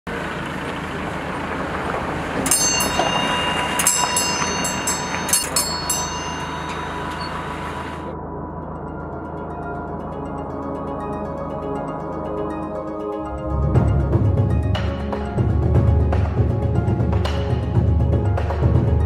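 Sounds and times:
metal prayer wheel rumbling: 0.8s - 8.1s
small bells ringing: 2.4s - 8.1s.

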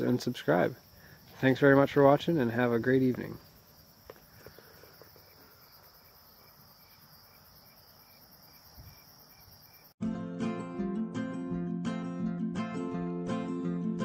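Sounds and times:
crickets trilling: 0.0s - 10.0s
acoustic guitar tune: 10.0s - 14.0s.

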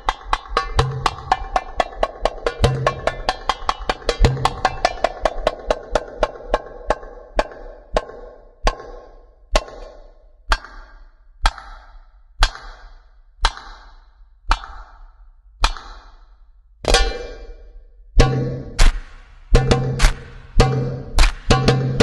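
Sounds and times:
ringing percussion strikes: 16.9s - 22.0s.

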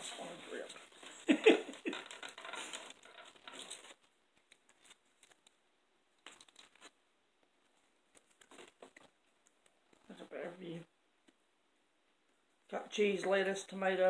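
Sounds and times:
burger wrapper crinkling: 2.6s - 5.6s, 6.2s - 7.0s, 8.1s - 9.6s.

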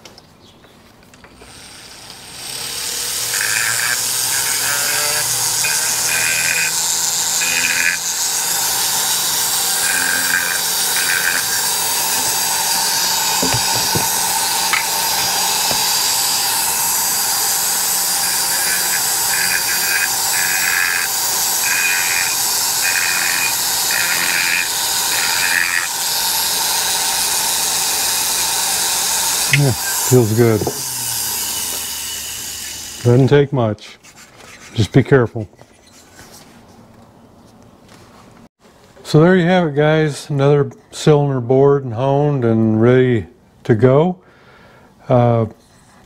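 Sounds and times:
rotary tool whirring: 1.3s - 33.3s
abrasive point grinding metal: 1.4s - 33.4s.

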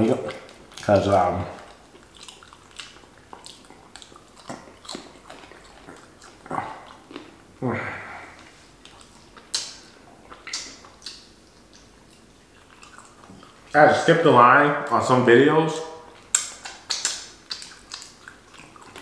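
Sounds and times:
wet chewing: 0.0s - 13.8s, 16.0s - 19.0s
wordless vocal sounds: 7.6s - 8.5s
lip-smacking clicks: 8.8s - 12.2s, 16.2s - 19.0s
finger licking: 16.2s - 19.0s.

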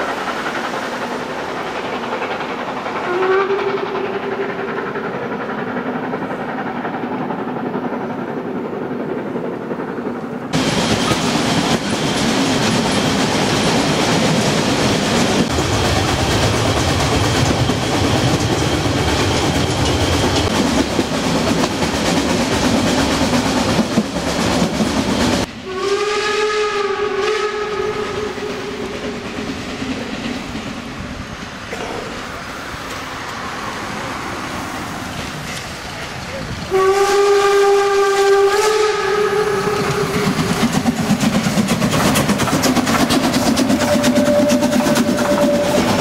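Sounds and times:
railway carriage rolling and rattling: 0.0s - 25.8s, 27.0s - 46.0s
approaching train running noise: 0.0s - 46.0s
steam locomotive whistle: 3.0s - 4.8s, 25.6s - 29.2s, 36.7s - 40.6s, 43.6s - 46.0s.

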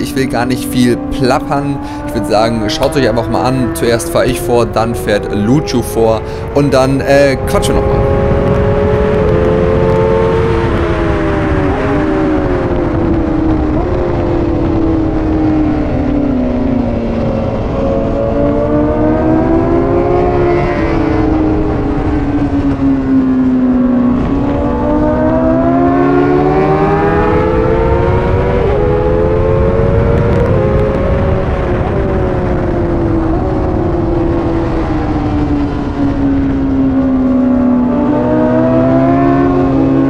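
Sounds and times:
gear changes: 0.0s - 40.0s
motorcycle engine revving: 0.0s - 40.0s
wind noise: 0.0s - 40.0s.

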